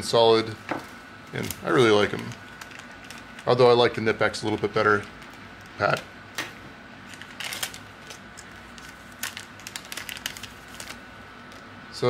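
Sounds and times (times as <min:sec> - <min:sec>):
packaging crinkling: 0:01.3 - 0:06.0, 0:07.0 - 0:11.7.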